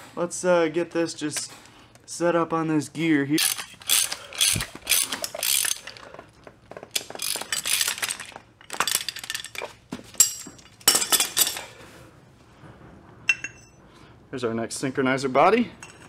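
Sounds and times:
metal puller clinking and rattling: 3.4 - 6.1, 6.8 - 11.7.

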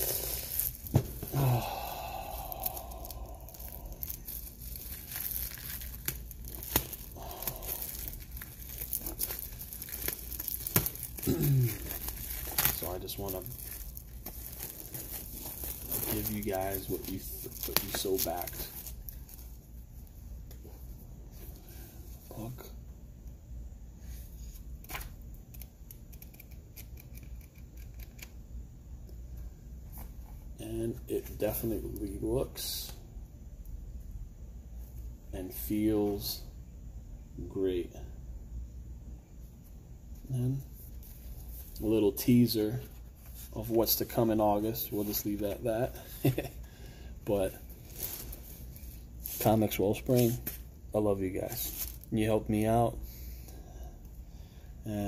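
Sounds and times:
plastic wrapping crinkling: 0.0 - 1.6, 2.4 - 19.6, 51.5 - 52.1.

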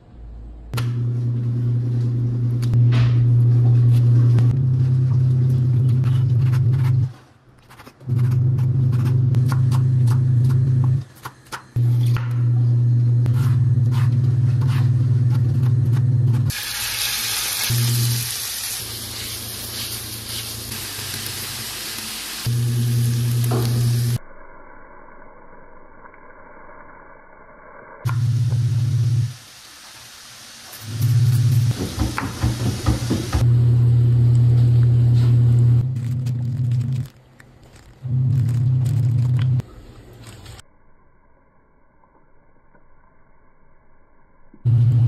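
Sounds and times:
food sizzling in a pan: 16.5 - 24.2, 28.2 - 33.3
low steady hum: 33.4 - 45.0.

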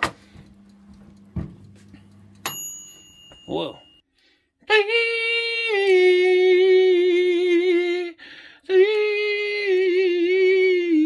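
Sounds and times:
person breathing: 4.1 - 4.6, 8.2 - 8.7.

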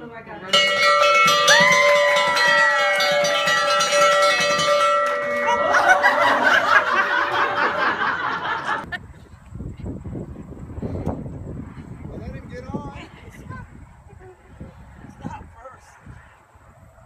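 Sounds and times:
wall bell ringing: 0.5 - 8.2
children shouting and laughing: 1.0 - 9.0.

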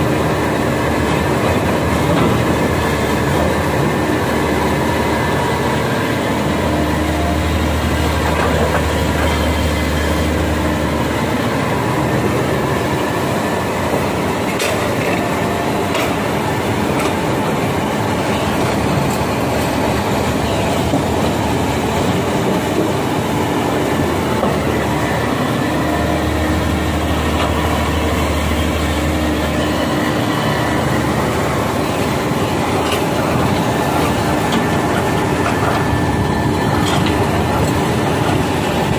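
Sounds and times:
excavator diesel engine: 0.0 - 38.9.

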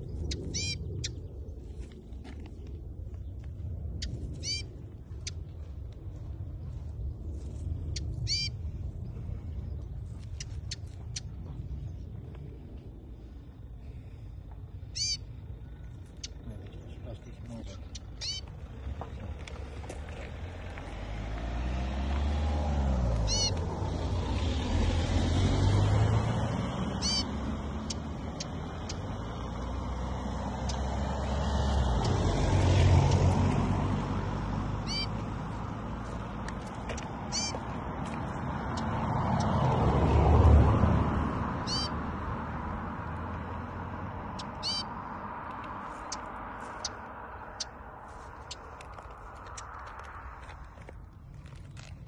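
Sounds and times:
small bird chirping: 0.0 - 1.8, 4.0 - 5.5, 7.9 - 8.6, 9.7 - 12.2, 14.8 - 19.3, 23.2 - 23.6, 26.9 - 29.2, 34.8 - 35.3, 36.5 - 37.7, 41.6 - 42.0, 44.3 - 45.0, 45.8 - 49.9
low rumble: 0.0 - 22.1
vehicle engine passing: 15.0 - 52.0.

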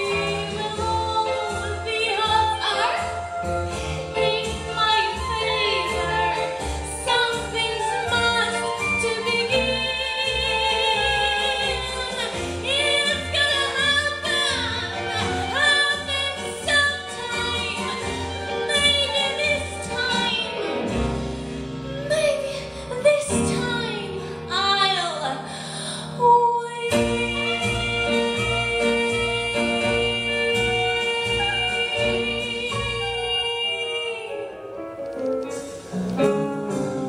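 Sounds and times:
woman singing: 0.0 - 21.0, 21.9 - 34.7.

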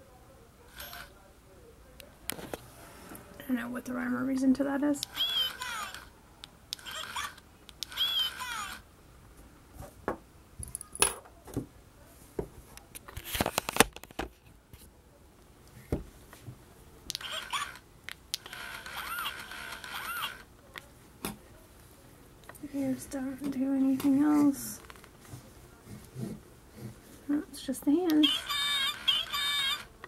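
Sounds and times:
toy being handled: 0.7 - 1.1, 5.0 - 6.1, 6.7 - 8.8, 17.1 - 20.9, 28.1 - 30.0
talking toy squeaky calls: 5.0 - 6.1, 6.8 - 8.8, 17.2 - 17.8, 18.5 - 20.4, 28.2 - 29.9.

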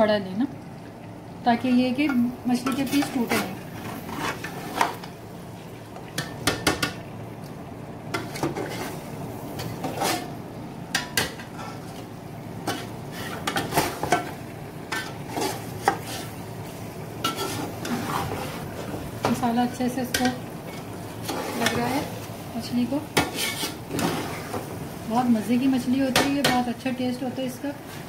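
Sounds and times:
metal spoon scraping a metal pot: 17.2 - 18.4, 23.2 - 23.8.

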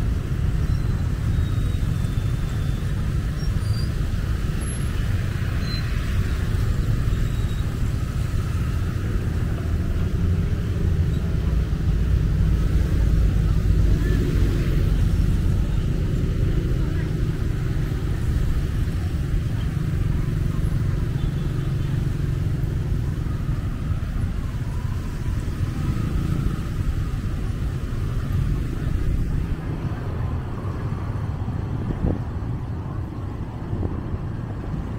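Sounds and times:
low traffic rumble: 0.0 - 34.9
vehicles passing on wet street: 0.0 - 34.9.

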